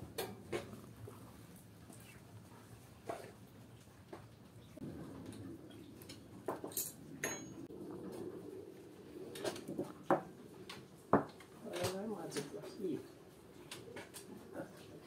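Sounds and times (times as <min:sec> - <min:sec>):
dishes and utensils clinking: 0:06.5 - 0:07.7.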